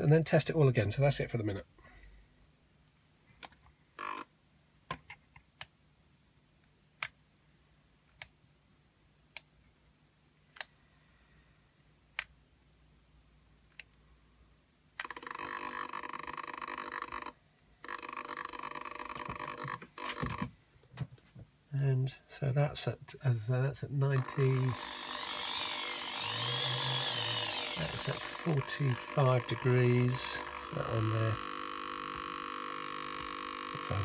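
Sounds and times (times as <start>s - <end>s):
servo motor whirring: 24.2s - 34.0s.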